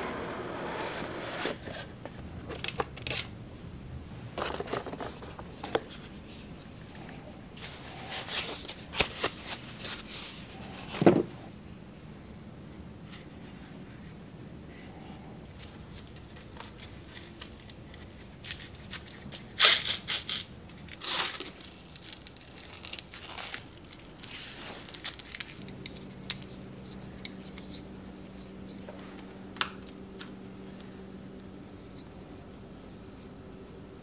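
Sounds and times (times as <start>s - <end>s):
velcro straps ripping apart: 19.6s - 25.6s.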